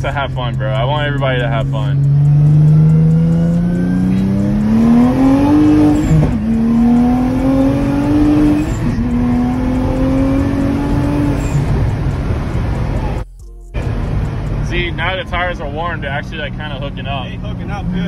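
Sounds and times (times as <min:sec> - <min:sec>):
car engine accelerating hard: 0:00.0 - 0:13.2, 0:13.8 - 0:18.0.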